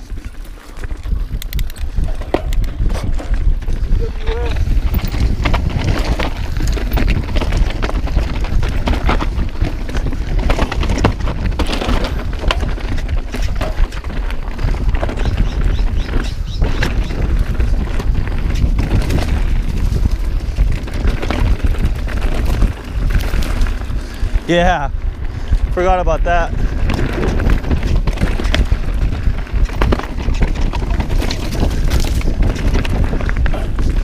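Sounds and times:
tyres crunching over dirt and rocks: 0.0s - 25.2s
bike clicks and rattles: 0.0s - 34.0s
wind buffeting microphone: 0.0s - 34.0s.

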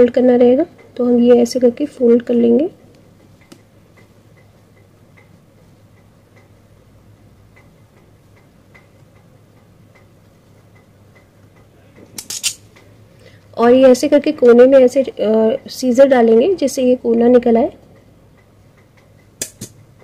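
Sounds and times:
faint regular ticking: 0.0s - 20.0s.

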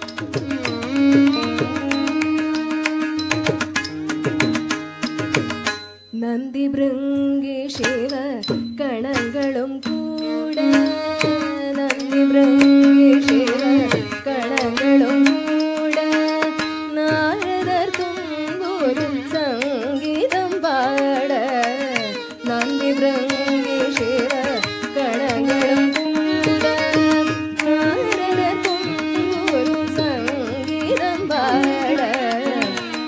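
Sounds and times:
drum strokes: 0.0s - 6.0s
person singing ornamented melody: 9.7s - 17.8s, 18.4s - 33.0s.

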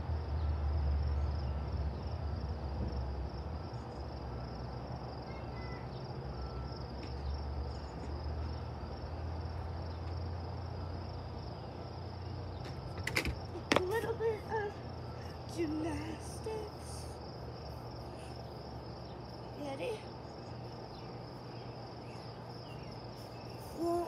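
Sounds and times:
crickets trilling: 0.0s - 24.0s.

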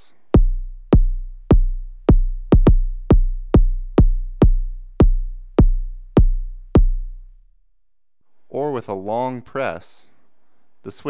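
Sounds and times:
deep synthesized drum hits: 0.4s - 7.3s.

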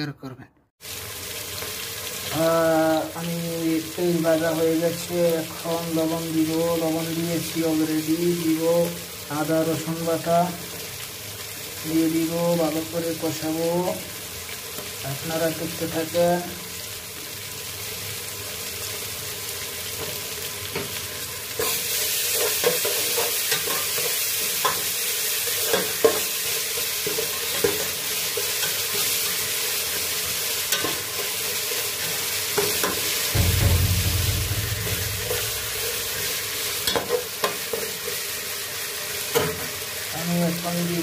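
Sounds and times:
onions sizzling in hot oil: 0.8s - 41.0s
low rumble: 33.4s - 36.6s.

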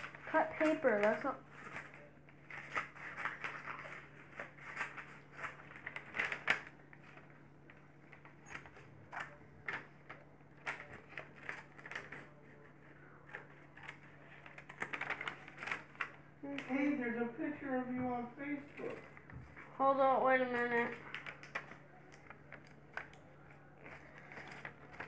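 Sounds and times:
paper rustling: 0.0s - 17.0s, 20.5s - 25.0s
scissors snipping paper: 13.2s - 16.7s.

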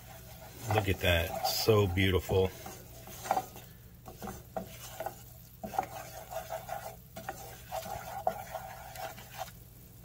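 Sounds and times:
spatula scraping saucepan: 0.0s - 9.6s
roux bubbling and sizzling: 0.0s - 10.0s.

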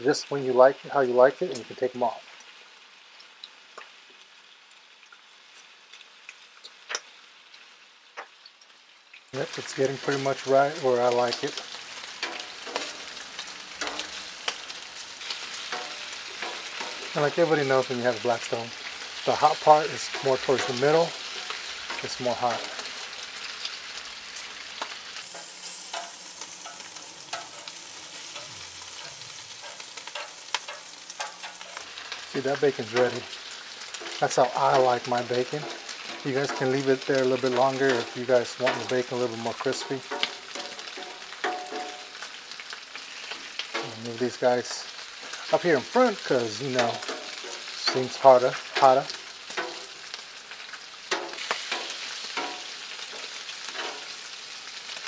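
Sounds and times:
bacon sizzling on a griddle: 0.0s - 55.0s
metal tongs clicking and scraping: 13.8s - 14.6s, 15.3s - 17.1s, 25.2s - 32.1s, 39.8s - 42.0s, 46.8s - 48.0s.

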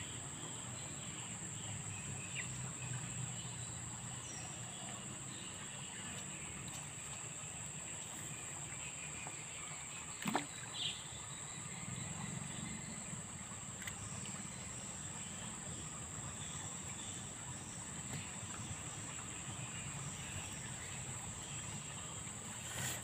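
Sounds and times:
light water splashing: 9.2s - 11.3s, 13.3s - 23.0s.

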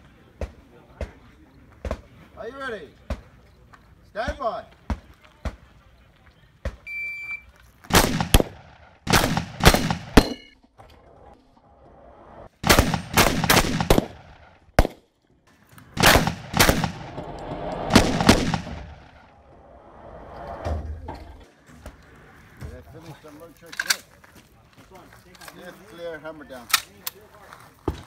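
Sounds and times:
shotgun shots echoing: 7.9s - 10.5s, 12.6s - 15.1s, 16.0s - 17.3s, 17.9s - 19.3s.

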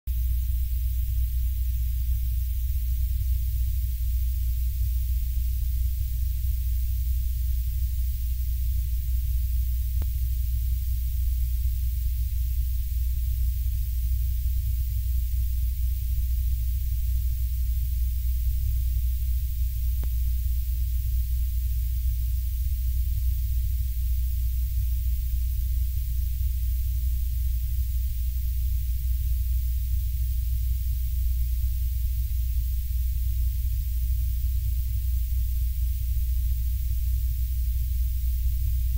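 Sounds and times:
deep rumbling drone with hiss: 0.1s - 38.9s
faint ticks: 9.9s - 10.2s, 20.0s - 20.3s.

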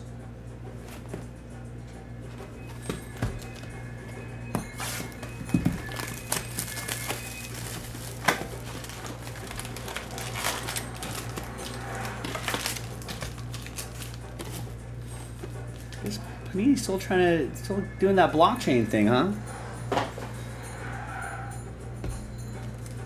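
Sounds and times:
steady low hum: 0.0s - 23.0s
card packs crinkling and rustling: 2.7s - 3.7s, 4.6s - 14.8s, 15.4s - 16.2s.

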